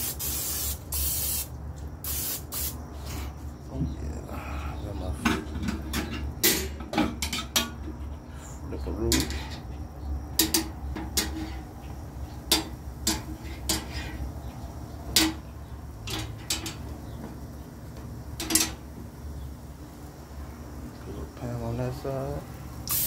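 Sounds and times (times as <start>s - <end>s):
metal tongs clacking on grill grate: 9.1s - 9.6s, 10.4s - 11.6s, 12.5s - 14.1s, 16.0s - 16.8s, 18.4s - 18.8s.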